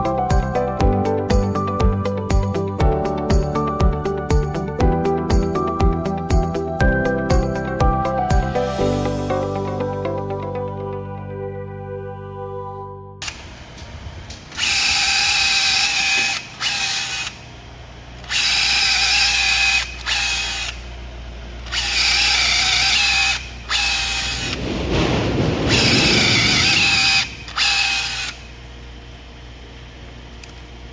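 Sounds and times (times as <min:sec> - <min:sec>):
drill motor whining: 0:13.2 - 0:17.6, 0:18.2 - 0:20.9, 0:21.6 - 0:24.6, 0:25.7 - 0:28.6
deeper drilling rumble: 0:18.2 - 0:29.0.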